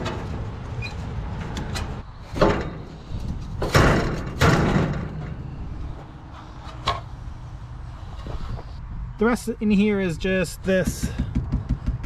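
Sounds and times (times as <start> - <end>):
metal knocks and scrapes: 0.0 - 7.2.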